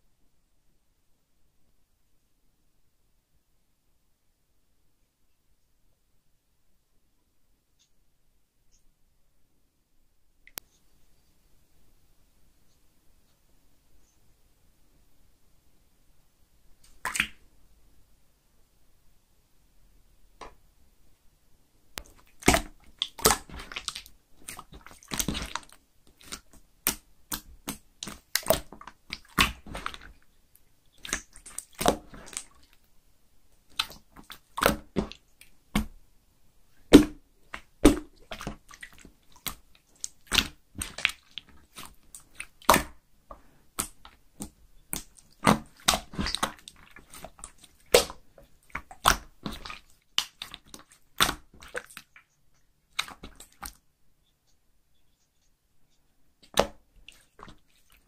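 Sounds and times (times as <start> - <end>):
slime wet pops and clicks: 26.2 - 30.1, 41.8 - 43.0, 43.8 - 46.6, 47.9 - 48.2.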